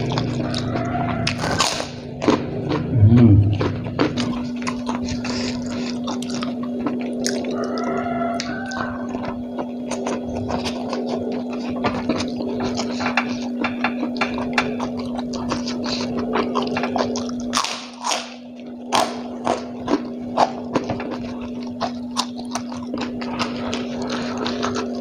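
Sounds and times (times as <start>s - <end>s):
chewing with wet mouth clicks: 0.0s - 25.0s
low hum: 2.4s - 5.0s
breathy rushes: 2.9s - 3.7s.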